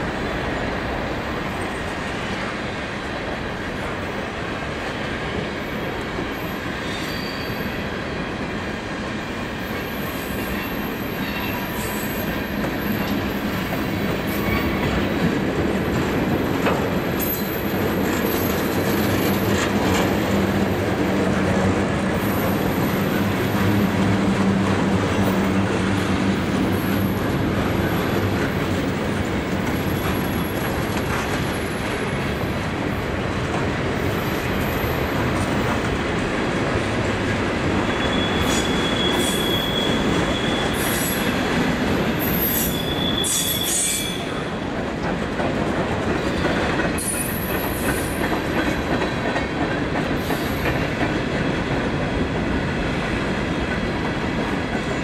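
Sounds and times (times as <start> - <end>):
train wheels rumbling on track: 0.0 - 55.0
high-pitched wheel squeals: 6.8 - 7.8, 37.8 - 41.4, 42.1 - 44.4.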